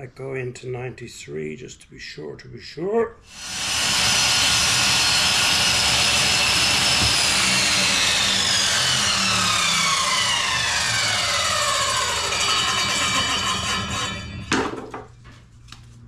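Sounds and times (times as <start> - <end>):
table saw ripping wood: 3.3 - 14.9.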